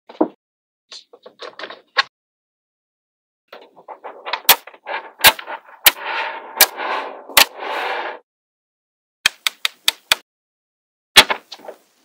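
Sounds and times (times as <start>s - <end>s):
magnetic balls snapping together: 9.3s - 10.2s.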